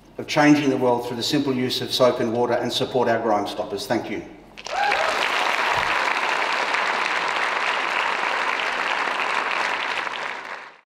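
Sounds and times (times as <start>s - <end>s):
audience applauding: 4.6s - 10.8s.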